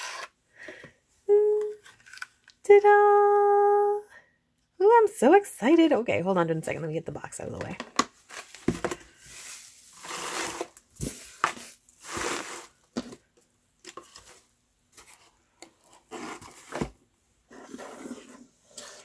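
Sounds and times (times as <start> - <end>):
paper filler and bubble wrap rustling: 8.2 - 13.2.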